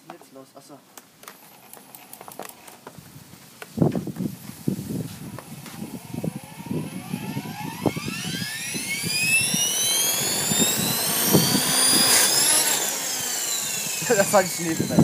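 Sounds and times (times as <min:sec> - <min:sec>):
rc helicopter motor whine: 0:01.2 - 0:02.8, 0:04.9 - 0:15.0.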